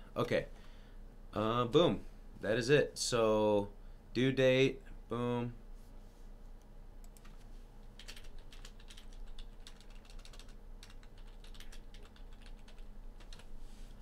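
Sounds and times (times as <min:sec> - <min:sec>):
computer keyboard typing: 0:07.0 - 0:07.4, 0:08.0 - 0:13.5.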